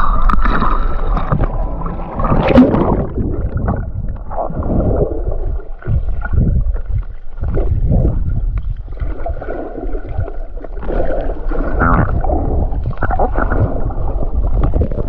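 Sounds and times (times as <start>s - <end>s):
muffled underwater water rushing: 0.0s - 15.0s
splash into water: 2.3s - 3.4s.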